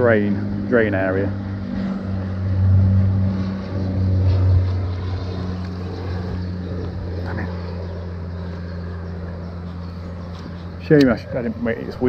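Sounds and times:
low motor-like hum: 0:00.0 - 0:12.0.

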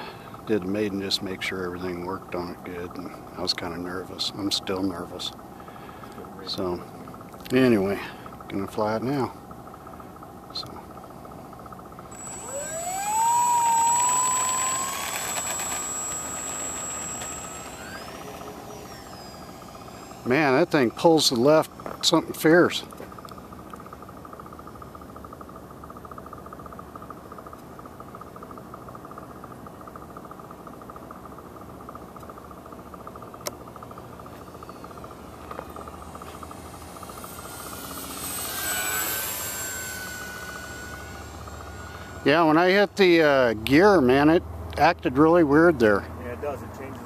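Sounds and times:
electric motor and propeller whine: 0:00.0 - 0:47.0
thin high-pitched whine: 0:10.5 - 0:27.6, 0:32.1 - 0:47.0.

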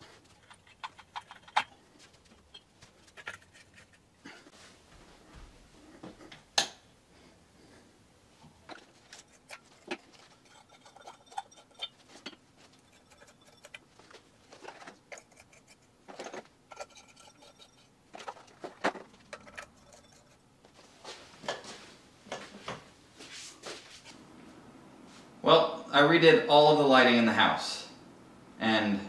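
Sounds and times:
hands handling parts clicking: 0:00.0 - 0:04.1
glass shades clinking: 0:08.6 - 0:22.5.

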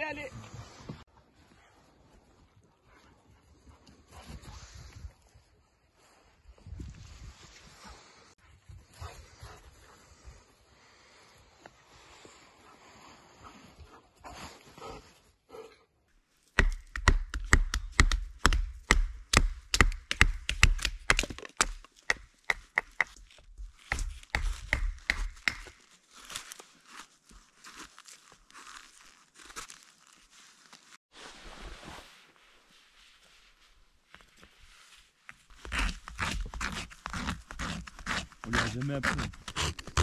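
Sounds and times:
axe chopping firewood: 0:16.6 - 0:23.2, 0:23.8 - 0:25.8, 0:35.7 - 0:40.0.

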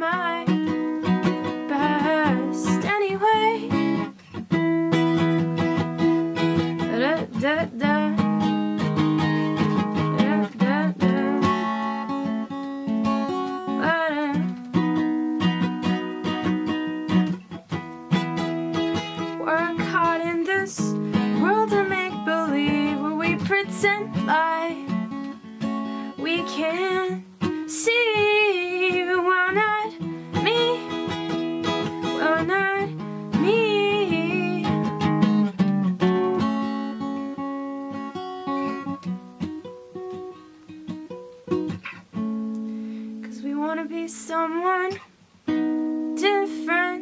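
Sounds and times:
woman singing: 0:00.0 - 0:04.1, 0:05.4 - 0:17.2, 0:18.7 - 0:35.4, 0:43.2 - 0:45.1, 0:46.0 - 0:47.0
acoustic guitar: 0:00.0 - 0:47.0.

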